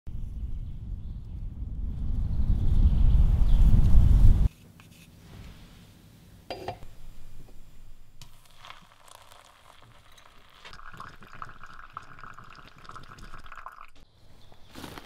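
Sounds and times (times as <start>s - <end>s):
water trickling onto coffee: 8.2s - 14.0s.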